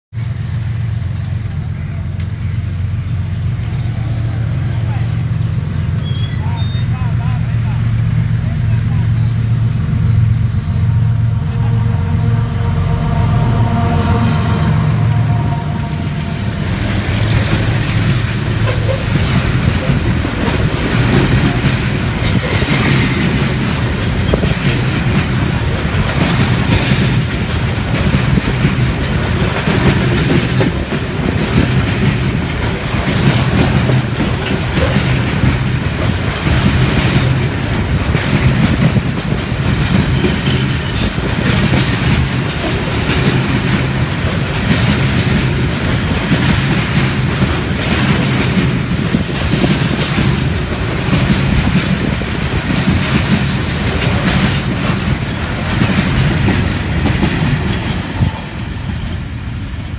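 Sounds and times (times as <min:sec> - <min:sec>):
train wagons rumbling: 0:00.2 - 0:59.9
wheels clacking over rail joints: 0:16.2 - 0:59.9.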